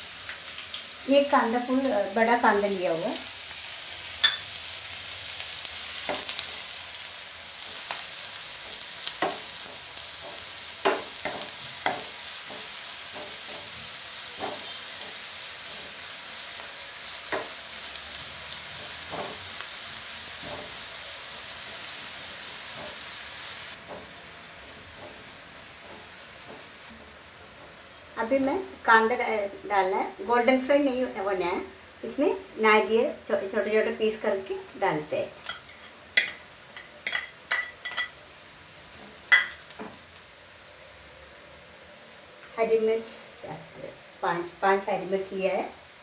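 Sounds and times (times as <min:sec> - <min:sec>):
onions sizzling in oil: 0:00.0 - 0:46.0
spatula scraping and tapping pan: 0:09.1 - 0:13.8, 0:14.4 - 0:16.0, 0:18.8 - 0:19.5, 0:20.4 - 0:20.8, 0:23.8 - 0:27.8.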